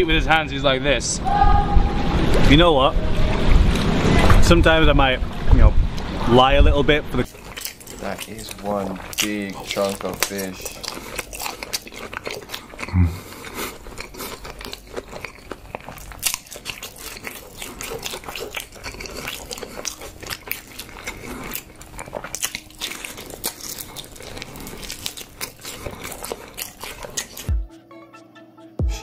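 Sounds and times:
wet chewing mouth clicks: 7.2 - 27.6
low falling voice hum: 12.9 - 13.3.

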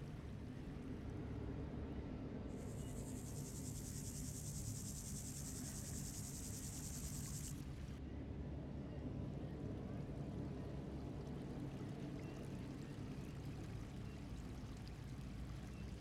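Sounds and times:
grasshopper buzzing song: 2.6 - 7.6.

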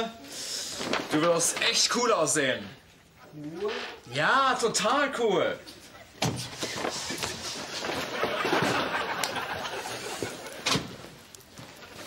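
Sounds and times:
studio audience laughing: 7.1 - 10.6.

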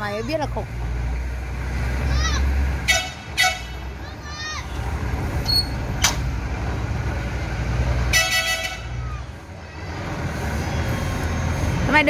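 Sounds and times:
vehicle horn toot: 2.8 - 3.8, 8.1 - 9.0.

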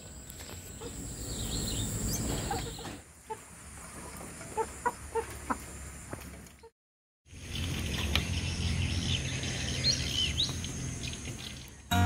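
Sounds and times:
chickens clucking: 1.8 - 6.7.

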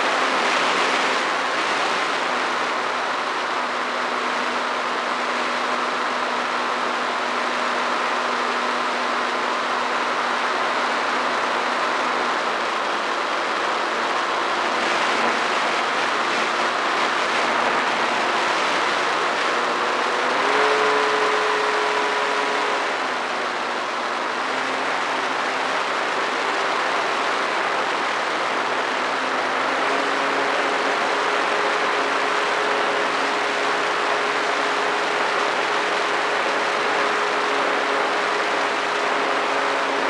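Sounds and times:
drone motors and propellers: 0.0 - 40.0.

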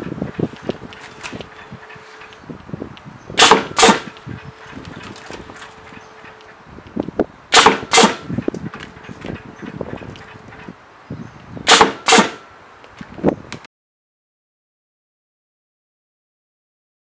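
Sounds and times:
pneumatic blade clacks: 3.4 - 5.4.

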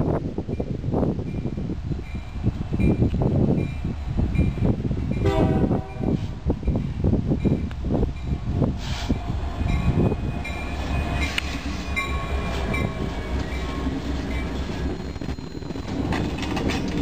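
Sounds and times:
locomotive engine rumble: 0.0 - 17.0
wheel clicks on rails: 15.8 - 17.0.

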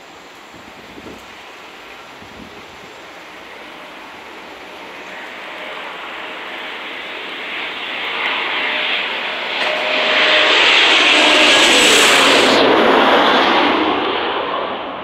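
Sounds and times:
jet engines passing overhead: 0.0 - 15.0.

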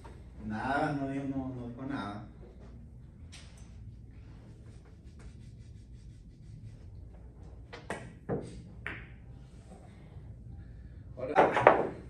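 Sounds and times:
cue striking ball: 7.8 - 9.2, 11.4 - 12.0
billiard balls clacking: 11.3 - 12.0.

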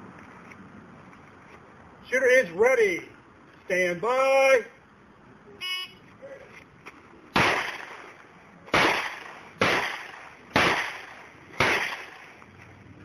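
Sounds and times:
handgun shots echoing: 7.4 - 8.1, 8.7 - 12.3.

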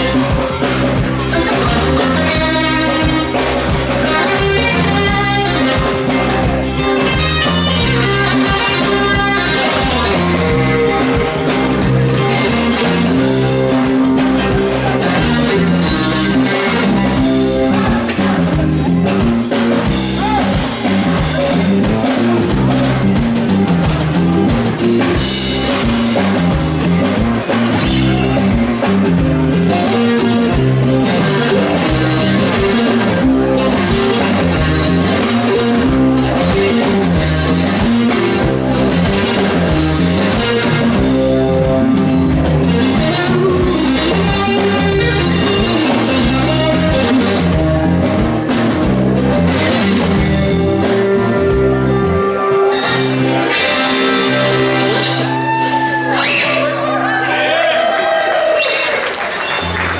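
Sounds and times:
bass line: 0.0 - 58.6
drum kit: 0.0 - 59.9
electric guitars: 0.0 - 59.9.

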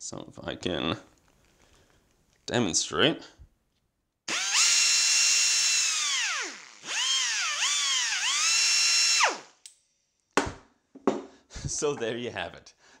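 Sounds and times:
die grinder whining: 4.3 - 9.6.

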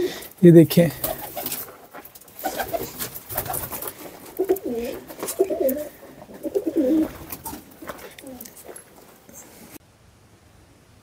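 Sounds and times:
pigeons cooing: 2.4 - 8.5.

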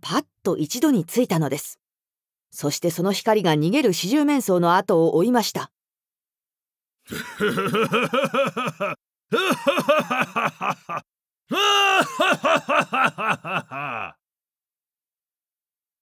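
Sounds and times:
person laughing theatrically: 7.1 - 14.2.

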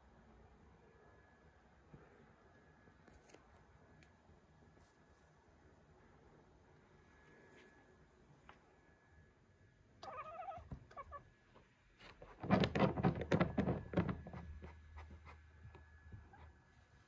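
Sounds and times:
animal chirps: 10.0 - 11.2.

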